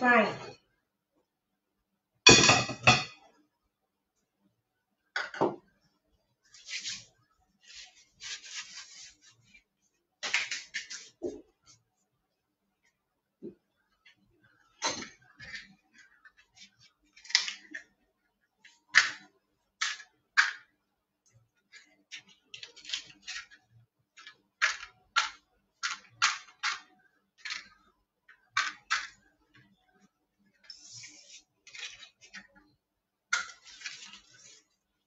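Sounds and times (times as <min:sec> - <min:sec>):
kitchenware clinking and knocking: 0:02.3 - 0:03.3, 0:05.2 - 0:05.7, 0:14.7 - 0:15.7.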